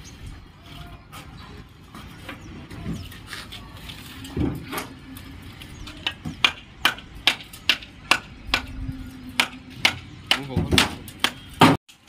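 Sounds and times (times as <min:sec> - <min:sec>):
hammering: 0:06.0 - 0:11.8.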